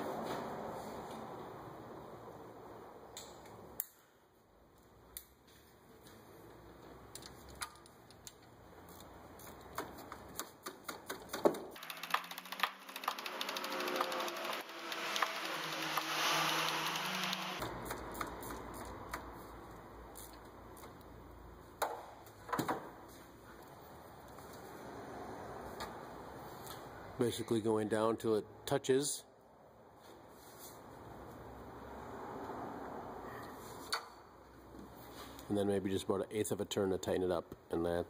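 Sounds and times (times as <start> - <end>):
socket ratchet clicking: 11.8 - 17.4.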